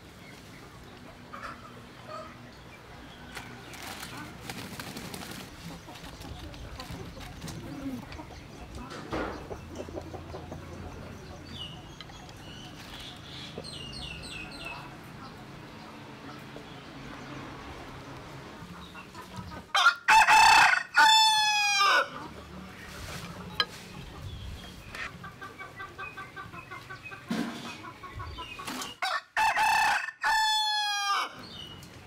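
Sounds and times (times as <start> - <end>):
rooster crowing: 19.8 - 22.1, 29.0 - 31.4.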